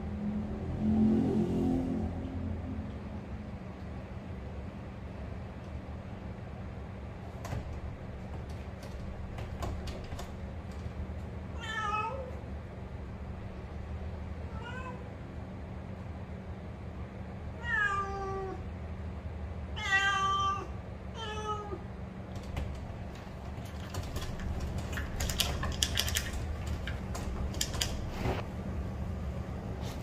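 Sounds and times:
cat meowing: 0:11.6 - 0:12.4, 0:14.5 - 0:15.1, 0:17.6 - 0:18.6, 0:19.8 - 0:21.8.

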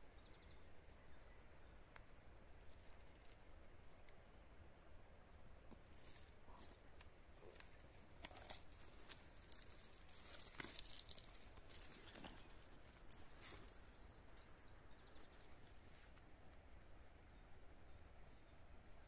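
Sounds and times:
faint clicks and rustles of hands: 0:05.6 - 0:16.7.

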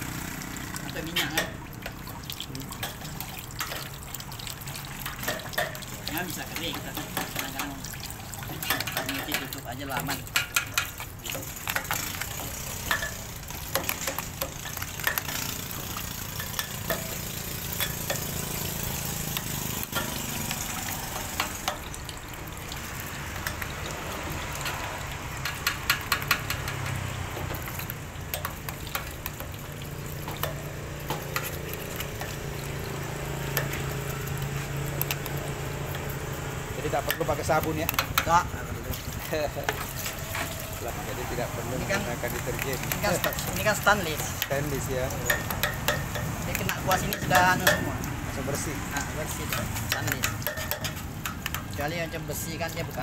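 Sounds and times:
water splashing on metal: 0:00.0 - 0:53.0
clicks and scrapes on metal: 0:08.5 - 0:15.6, 0:49.3 - 0:51.8.

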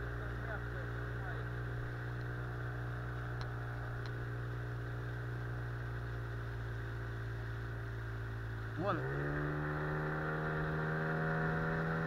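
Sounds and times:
outboard motor running: 0:00.0 - 0:12.0
faint clicks: 0:03.4 - 0:04.2.

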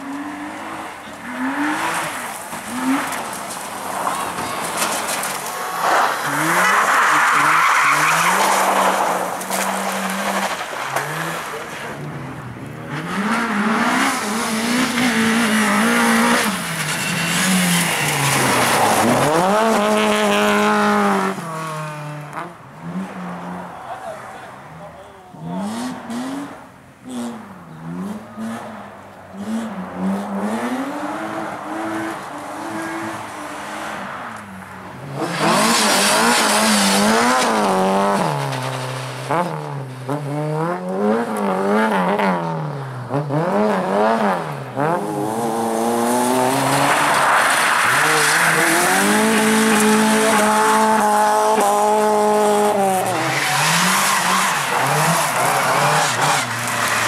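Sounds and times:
rally car engines revving: 0:00.0 - 0:57.0
tyres hissing on gravel: 0:02.8 - 0:11.9, 0:46.0 - 0:50.8.

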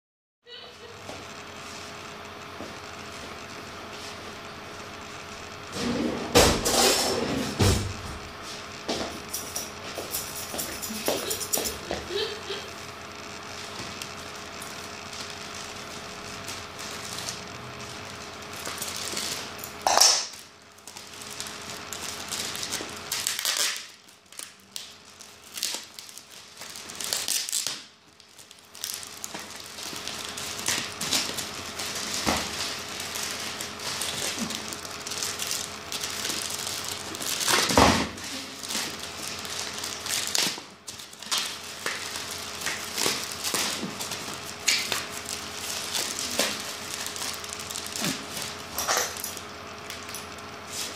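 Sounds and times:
plastic bag crinkling: 0:09.7 - 0:50.9
plastic tearing: 0:13.4 - 0:50.9
scissors cutting plastic: 0:18.6 - 0:50.9.

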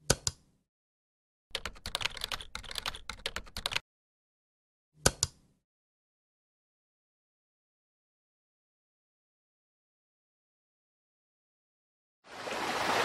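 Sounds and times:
computer keyboard typing: 0:01.5 - 0:03.8.

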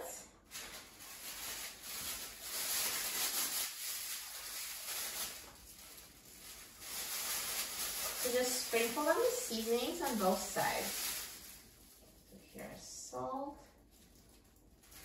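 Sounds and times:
plastic gloves rustling: 0:00.0 - 0:15.0.

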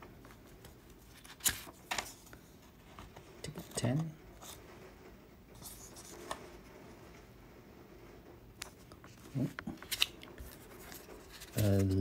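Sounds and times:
paper tickets rustling: 0:09.1 - 0:12.0.

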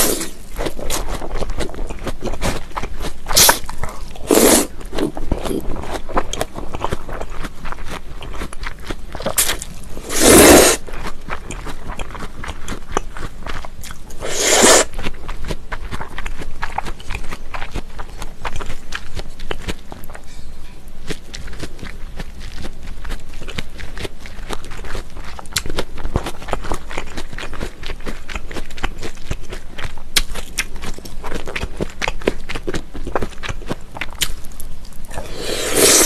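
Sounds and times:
wet chewing with crunchy bites: 0:00.0 - 0:20.2, 0:21.0 - 0:36.0
noodle slurps: 0:03.3 - 0:03.6, 0:04.2 - 0:04.8, 0:09.4 - 0:10.8, 0:14.2 - 0:15.0, 0:35.2 - 0:36.0.

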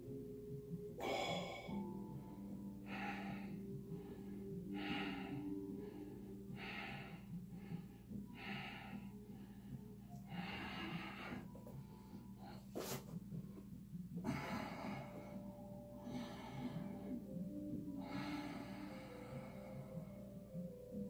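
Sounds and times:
person breathing hissing breaths: 0:01.0 - 0:01.9, 0:02.8 - 0:13.1.

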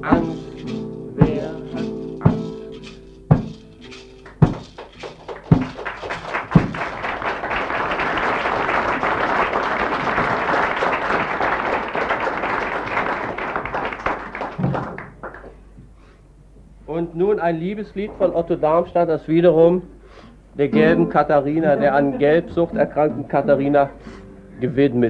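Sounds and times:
audience applauding: 0:04.2 - 0:15.6.

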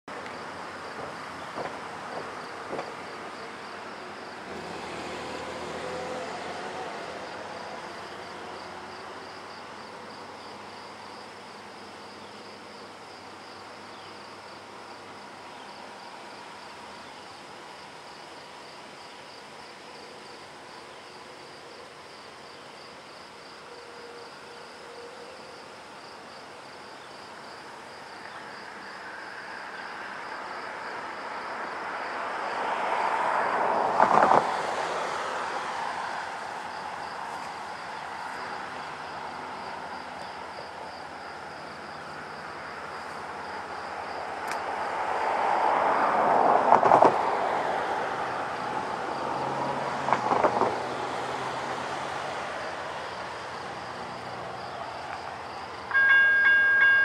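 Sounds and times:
insects trilling: 0:00.1 - 0:57.0
distant freight train rumble: 0:00.6 - 0:09.9, 0:52.9 - 0:57.0.

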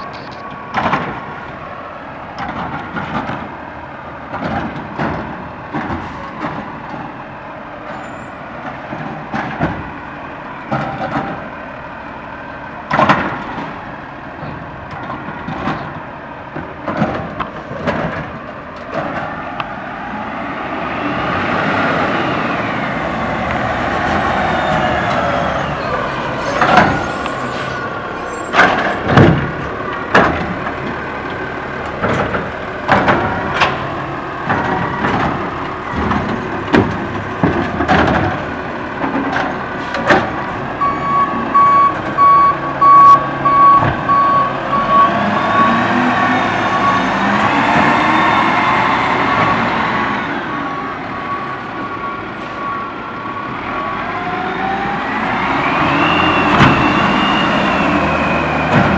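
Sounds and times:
truck arm clunks and bangs: 0:00.7 - 0:01.3, 0:02.3 - 0:03.6, 0:04.2 - 0:07.1, 0:08.6 - 0:10.0, 0:10.6 - 0:11.5, 0:12.8 - 0:19.4, 0:28.4 - 0:46.4, 0:56.4 - 0:57.2, 0:58.5 - 0:58.9
truck engine revving: 0:16.9 - 0:52.0, 0:52.9 - 0:58.9.

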